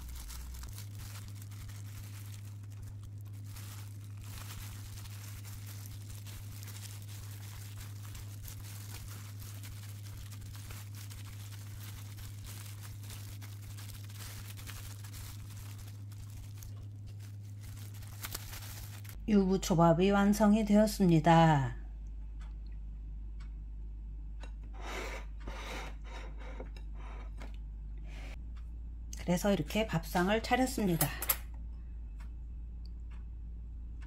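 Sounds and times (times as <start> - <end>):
plastic gloves crinkling: 0.0 - 19.2
steady low hum: 0.0 - 34.0.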